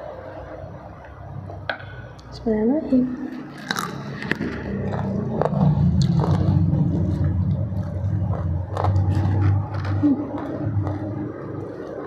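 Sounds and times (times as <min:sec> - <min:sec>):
steady low rumble: 0:02.2 - 0:12.0
crunchy chewing of fried chicken: 0:03.5 - 0:12.0.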